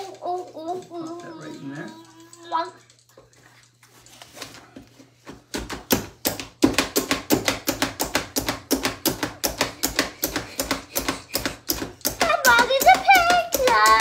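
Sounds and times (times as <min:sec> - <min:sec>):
food chopper blades clacking: 0:05.8 - 0:14.0.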